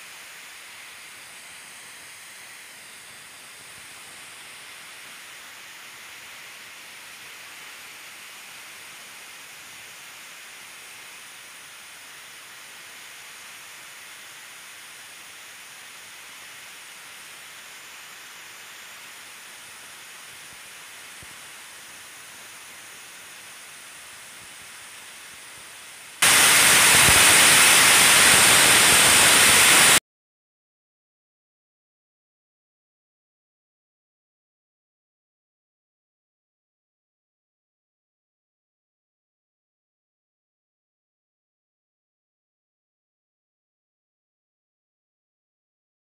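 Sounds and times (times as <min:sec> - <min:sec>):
background hiss: 0:00.0 - 0:30.0
harsh static burst: 0:26.2 - 0:30.0.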